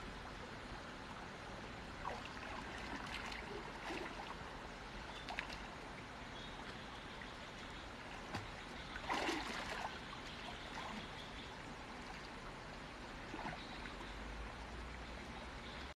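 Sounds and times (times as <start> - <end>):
stream trickling over rocks: 0.0 - 15.9
water splash: 8.3 - 10.0.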